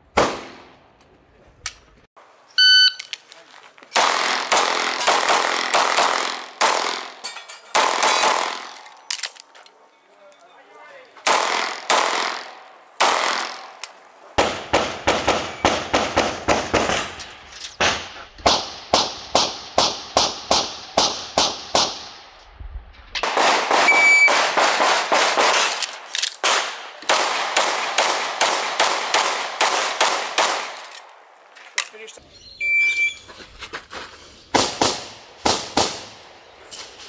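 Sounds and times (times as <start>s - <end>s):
pistol shots: 0.1s - 0.7s, 4.0s - 8.7s, 11.2s - 13.8s, 14.4s - 17.2s, 23.2s - 31.0s
electronic beep: 2.6s - 3.1s, 32.4s - 33.2s.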